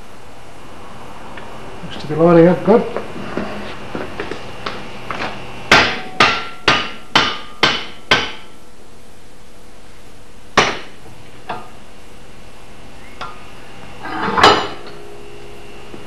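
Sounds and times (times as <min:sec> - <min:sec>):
hammer striking axe handle: 0:05.7 - 0:08.5.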